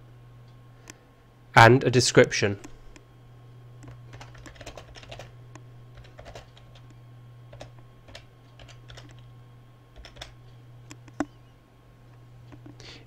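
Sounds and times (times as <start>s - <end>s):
steady low hum: 0.0s - 13.0s
keyboard key clicks: 10.0s - 11.4s.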